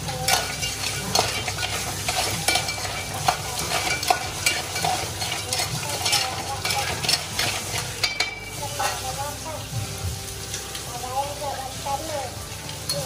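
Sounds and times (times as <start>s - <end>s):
spoon scraping a pan: 0.0s - 9.5s
spices sizzling in oil: 0.0s - 13.0s.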